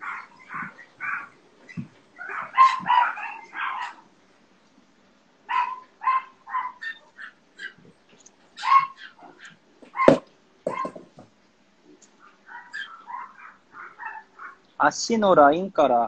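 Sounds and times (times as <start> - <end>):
dog barking: 0.0 - 4.0, 5.5 - 7.8, 8.6 - 11.1, 12.5 - 14.6.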